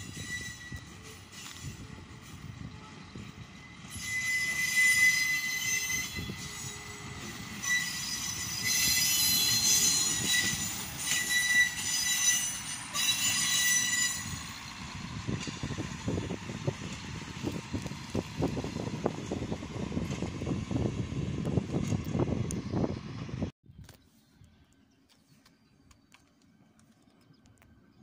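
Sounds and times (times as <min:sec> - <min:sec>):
train wheels squealing on rails: 0:00.0 - 0:20.4
low rumble of wheels: 0:12.5 - 0:28.0.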